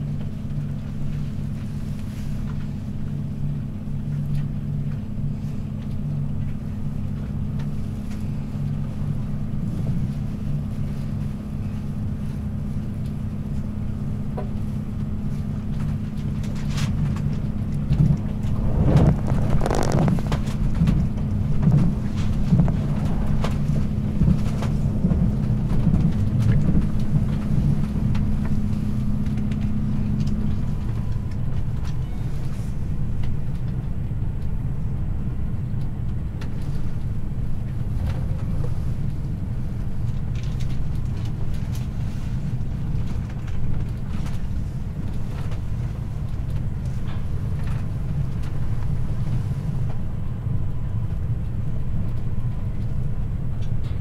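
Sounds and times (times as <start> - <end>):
train wheels rumbling on rails: 0.0 - 54.0
humming tone: 27.0 - 33.4.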